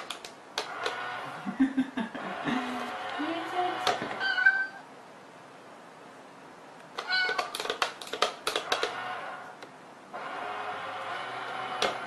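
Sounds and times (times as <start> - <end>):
sharp clicks and taps: 0.0 - 1.0, 6.8 - 9.0
cat meowing: 4.2 - 4.9, 7.0 - 7.5.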